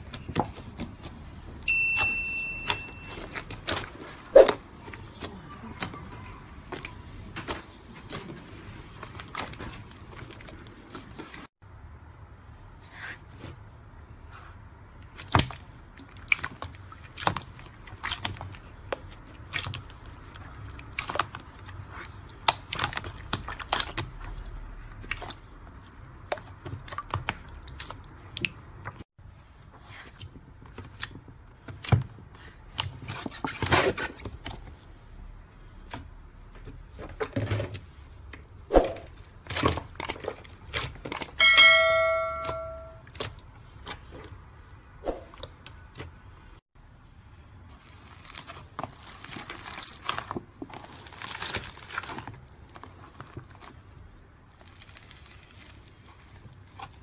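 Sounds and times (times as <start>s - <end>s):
bell-like chime: 1.7s - 3.2s, 41.4s - 43.0s
slime crackling and popping: 47.9s - 53.9s, 54.5s - 57.0s.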